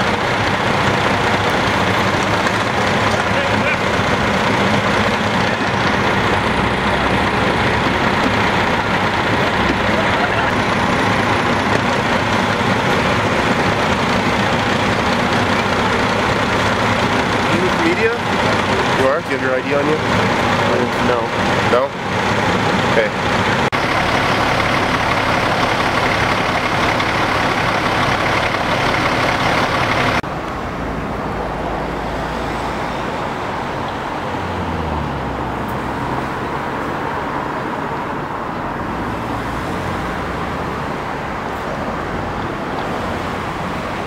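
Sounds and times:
idling truck engines: 0.0s - 44.0s
street traffic: 0.0s - 44.0s
vehicle driving past: 28.7s - 44.0s.

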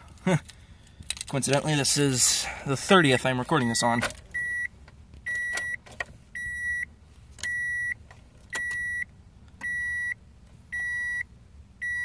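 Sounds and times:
car door warning chime beeping: 3.0s - 4.7s, 5.3s - 5.8s, 6.4s - 12.0s.

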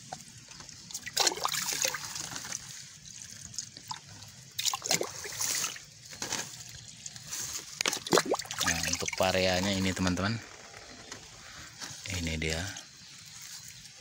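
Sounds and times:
liquid trickling onto soil: 0.0s - 10.3s.

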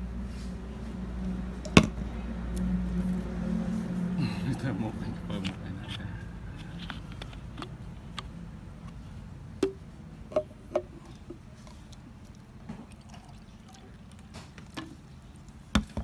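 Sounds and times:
water pouring faintly: 11.0s - 15.7s.

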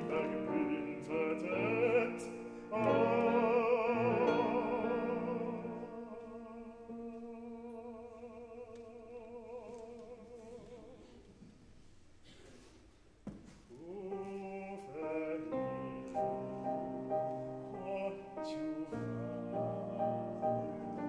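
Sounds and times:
sustained piano chords: 15.1s - 21.0s.

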